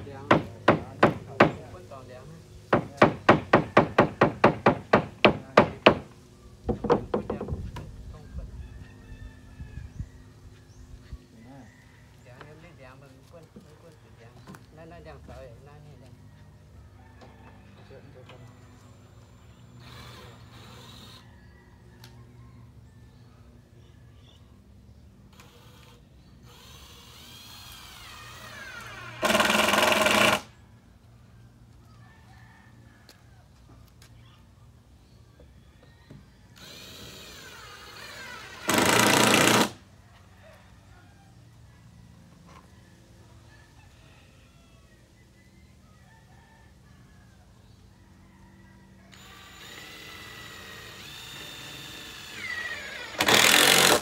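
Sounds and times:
hammer driving nails into wood: 2.7 - 6.1, 38.6 - 39.8
power tool buzzing: 25.3 - 30.5, 36.6 - 39.8, 49.1 - 54.0.

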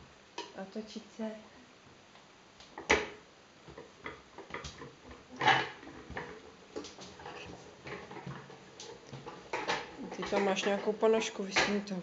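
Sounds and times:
push cart rattling and knocking: 3.7 - 10.9.

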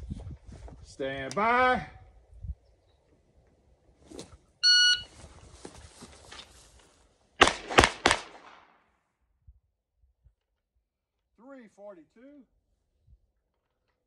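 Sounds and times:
shot timer beep: 4.6 - 5.1
handgun shots: 7.4 - 8.7.

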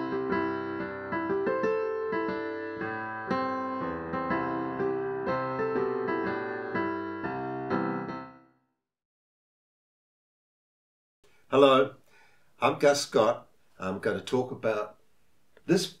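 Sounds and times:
electric piano playing: 0.0 - 8.5.

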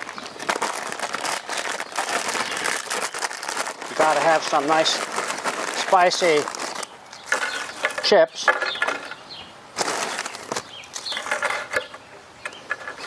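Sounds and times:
plastic chip bag crinkling: 0.0 - 8.2, 9.8 - 11.8.

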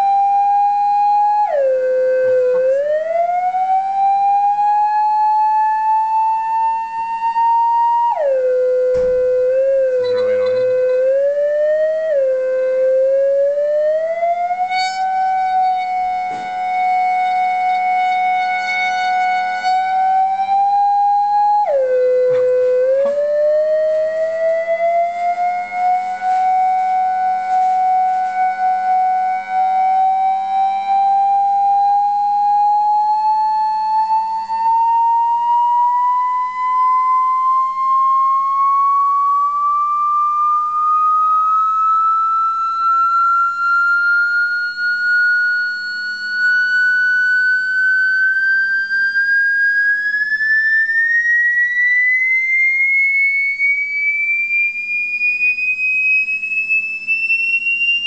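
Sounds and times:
rising test tone: 0.0 - 58.0
faint low hum: 5.5 - 49.0.

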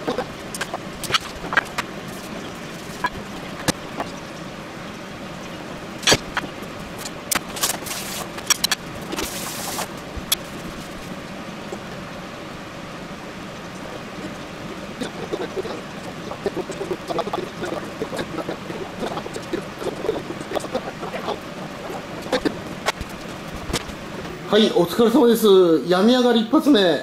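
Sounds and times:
steady background hum: 0.0 - 27.0.

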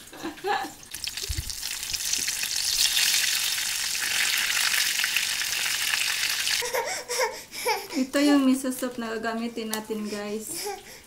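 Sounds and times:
food sizzling in hot oil: 0.7 - 6.6.

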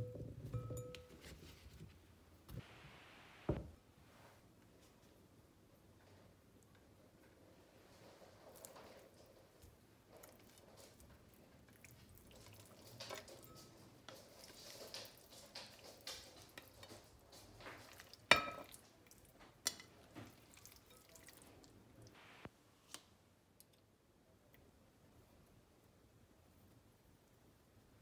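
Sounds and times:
knock on glass bowl: 0.0 - 1.1
wet squishes of raw chicken: 10.1 - 13.3, 17.6 - 19.5, 20.2 - 21.8.

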